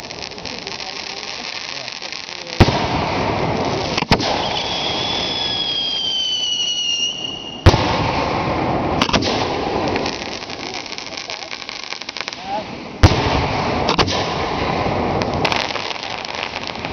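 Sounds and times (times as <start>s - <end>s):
fast crackle: 0.0s - 2.9s, 9.0s - 12.6s
crackling hiss: 0.0s - 16.9s
fireworks bangs: 0.0s - 16.9s
falling whistle: 4.4s - 7.6s.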